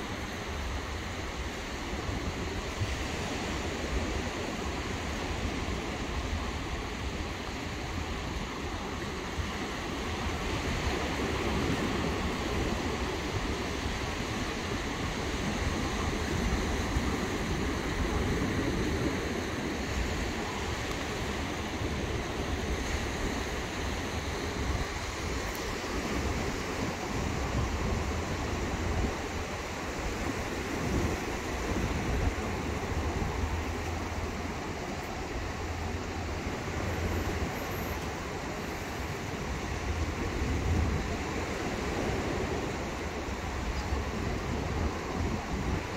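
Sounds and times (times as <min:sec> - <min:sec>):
ocean surf washing on beach: 0:00.0 - 0:45.9
wind buffeting microphone: 0:00.0 - 0:45.9.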